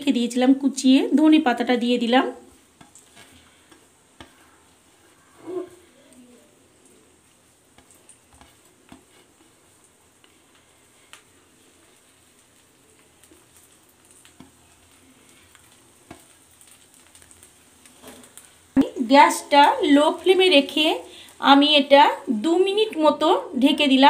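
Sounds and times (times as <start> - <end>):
omelette sizzling in frying pan: 0.0 - 24.0
small clicks and pops: 7.7 - 18.9.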